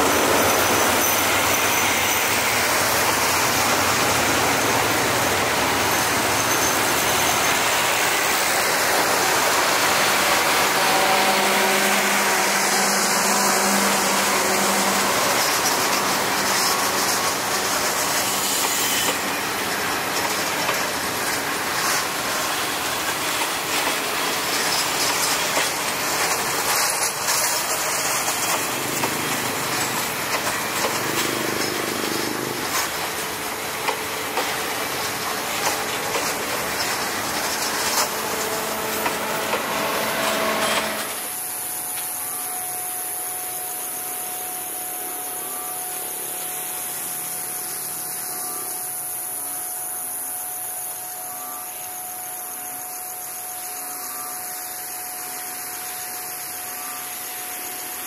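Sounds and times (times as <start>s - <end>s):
train rushing past: 0.0s - 49.6s
wheels clicking over track: 14.8s - 41.3s.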